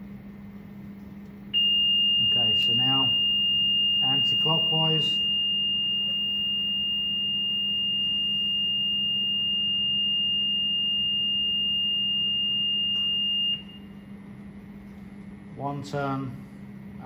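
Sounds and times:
high-pitched steady beep: 1.6 - 13.8.

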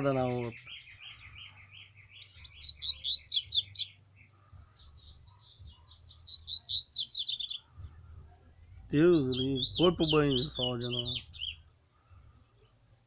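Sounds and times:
birds singing: 0.0 - 13.0.

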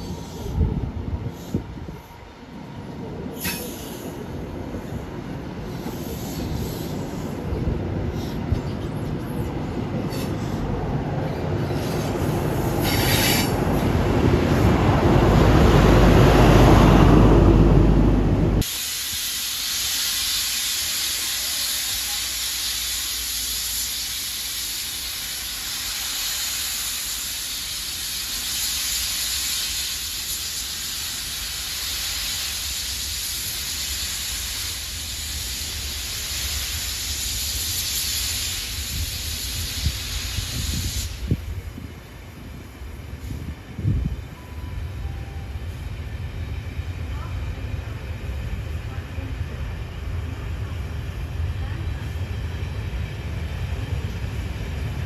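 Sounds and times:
steam locomotive hissing: 0.0 - 55.0
train passing rumble: 0.0 - 55.0.

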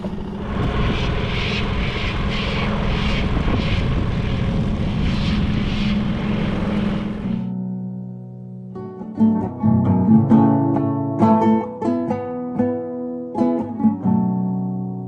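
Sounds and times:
engine running: 0.0 - 7.5
pulsing hiss: 0.0 - 7.5.

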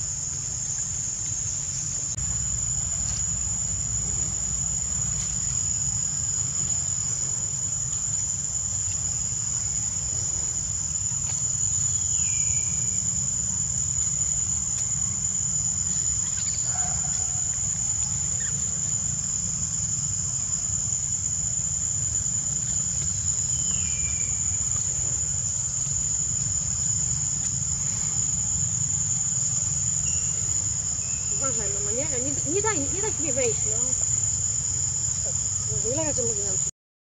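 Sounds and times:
steady low rumble: 0.0 - 12.2
insect chorus droning: 0.0 - 36.7.

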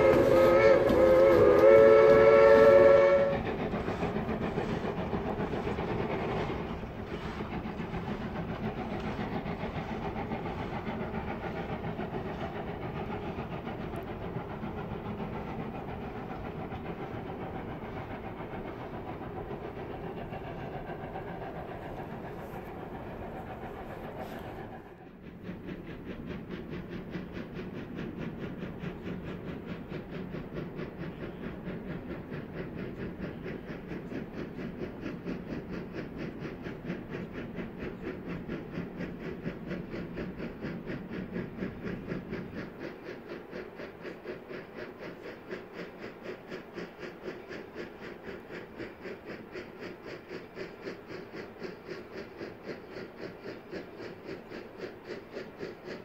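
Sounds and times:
steam locomotive exhaust beat: 0.0 - 56.0.

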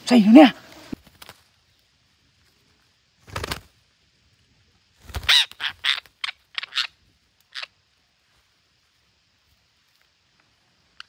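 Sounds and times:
parakeets squawking: 5.2 - 6.9.

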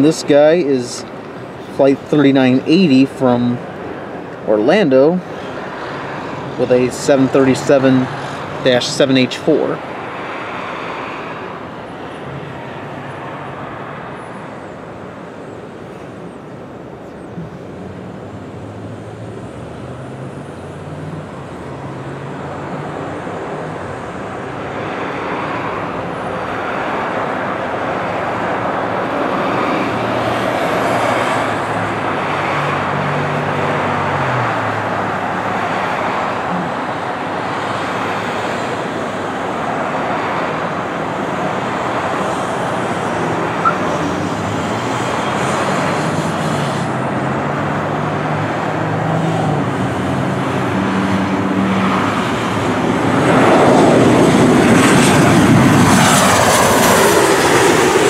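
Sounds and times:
jet engine rumble: 51.3 - 58.0.

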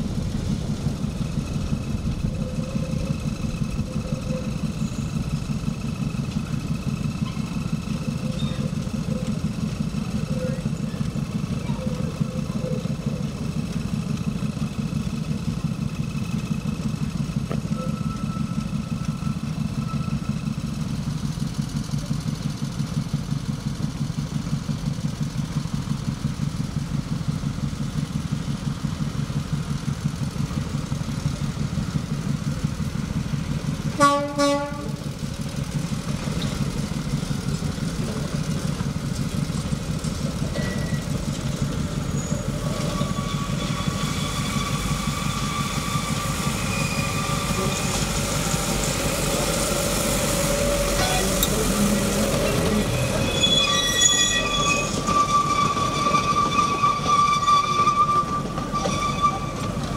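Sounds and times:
diesel locomotive engine idling: 0.0 - 59.9
locomotive horn toots: 33.9 - 35.0, 42.1 - 48.2, 50.6 - 59.9.

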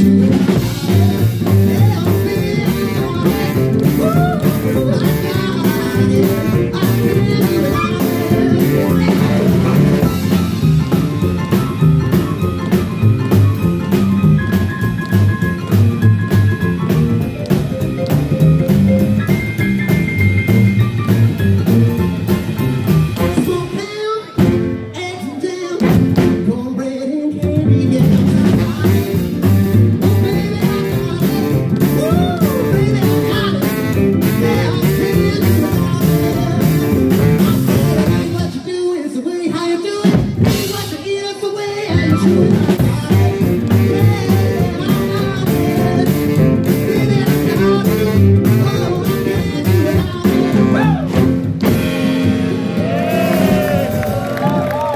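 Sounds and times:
rhythm and blues band playing: 0.0 - 54.9
woman singing: 0.5 - 9.8.

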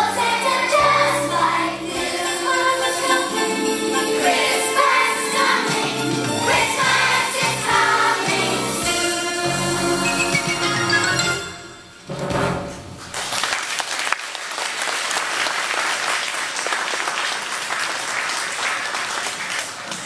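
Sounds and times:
audience applause: 13.1 - 20.0.

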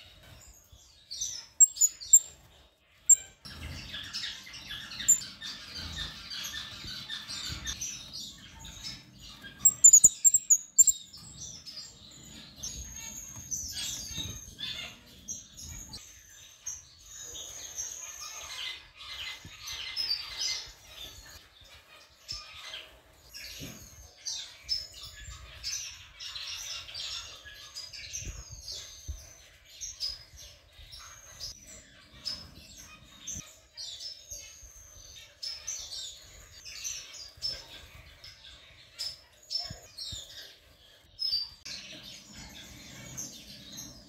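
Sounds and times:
finches chirping: 1.0 - 21.4.

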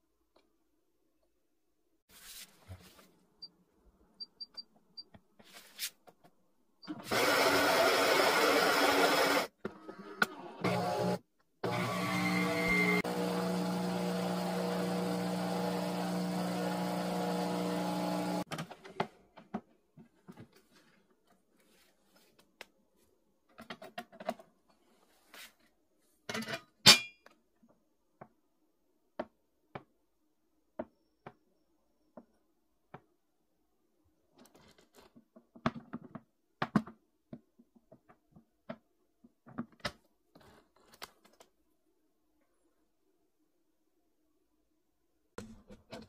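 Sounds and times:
espresso machine pump humming: 10.7 - 18.4.

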